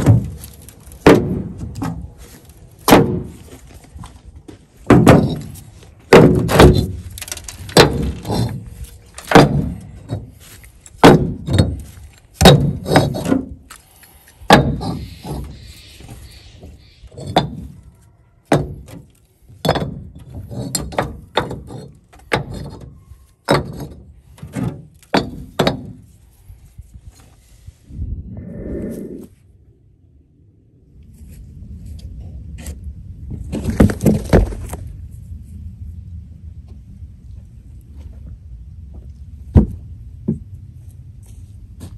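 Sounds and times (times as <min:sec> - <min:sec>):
clay bricks knocking on truck bed: 0:00.0 - 0:02.0, 0:02.8 - 0:03.4, 0:04.8 - 0:08.6, 0:09.2 - 0:10.3, 0:11.0 - 0:13.6, 0:14.5 - 0:15.0, 0:17.2 - 0:17.8, 0:18.5 - 0:26.1, 0:39.5 - 0:40.5.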